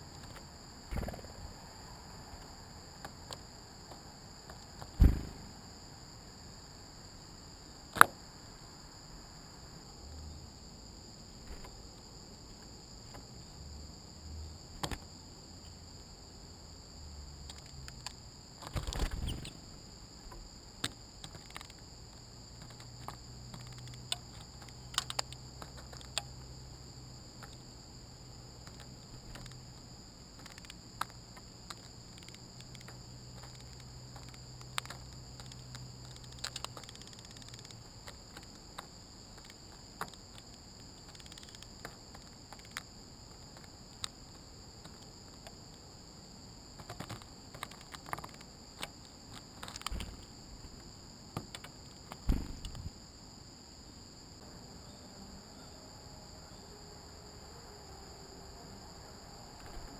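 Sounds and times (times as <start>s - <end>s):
insects chorus: 0.0s - 59.9s
birds tapping and pecking: 17.5s - 19.6s, 20.3s - 26.5s, 28.6s - 29.8s, 30.4s - 45.8s, 46.7s - 50.8s.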